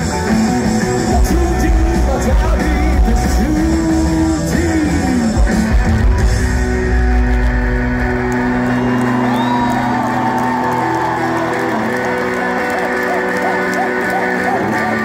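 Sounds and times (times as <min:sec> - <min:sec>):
live rock band: 0:00.0 - 0:15.0.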